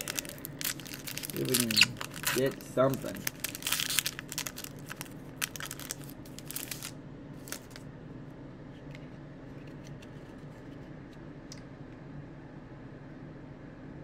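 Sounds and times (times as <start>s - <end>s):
foil wrapper crinkling: 0.0s - 7.8s
faint steady hum: 0.0s - 14.0s.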